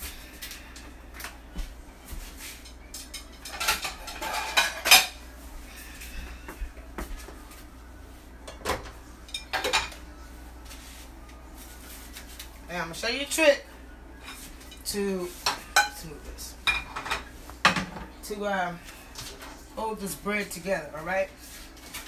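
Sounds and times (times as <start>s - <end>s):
dishes clattering: 2.6s - 5.2s, 8.4s - 10.0s, 16.6s - 18.2s.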